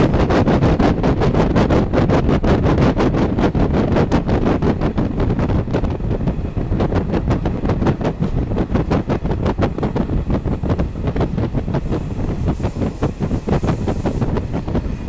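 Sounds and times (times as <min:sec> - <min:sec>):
train wheels rumbling on track: 0:00.0 - 0:15.0.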